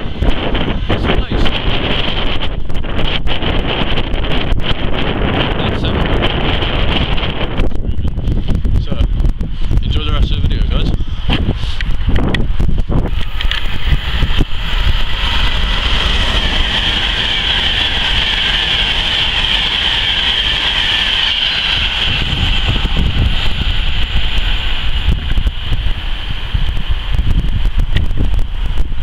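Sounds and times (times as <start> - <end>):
wind rumble on microphone: 0.0 - 29.0
train rushing past: 12.4 - 29.0.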